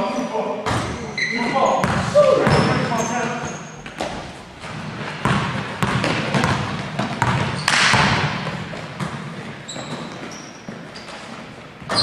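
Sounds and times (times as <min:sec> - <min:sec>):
sneaker squeak: 0:00.0 - 0:04.2, 0:07.2 - 0:08.1, 0:09.0 - 0:12.0
basketball bouncing on gym floor: 0:00.6 - 0:01.1, 0:01.7 - 0:12.0.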